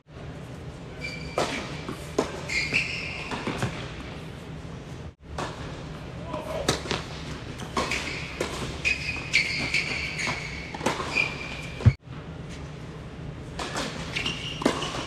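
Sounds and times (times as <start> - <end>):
sneakers squeaking on court: 1.0 - 3.8, 7.7 - 12.0
racket hitting tennis ball: 6.6 - 12.0.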